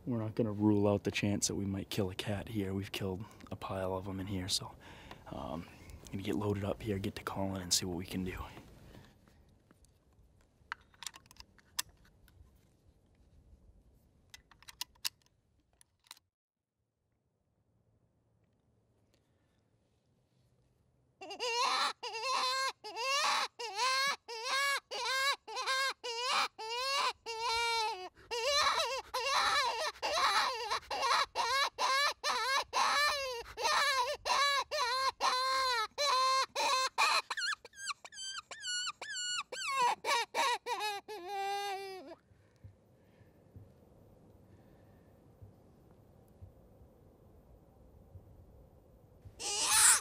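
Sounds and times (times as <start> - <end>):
predator call crying squeals: 21.2 - 42.1, 49.4 - 50.0.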